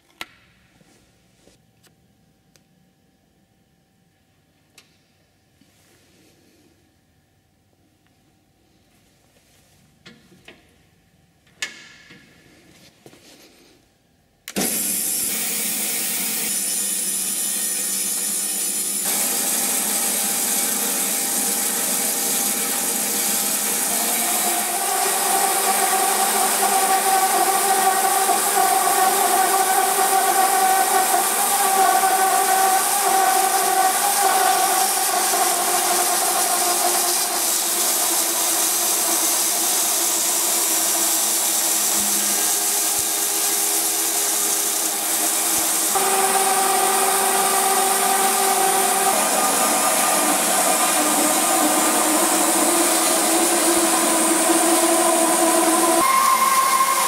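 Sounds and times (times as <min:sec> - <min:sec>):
band saw cutting plastic pipe: 0:14.6 - 0:57.0.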